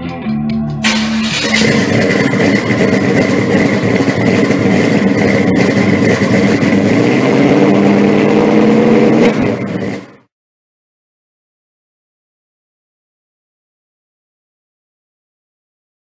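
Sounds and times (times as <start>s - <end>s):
car engine rumbling: 0.8s - 10.3s.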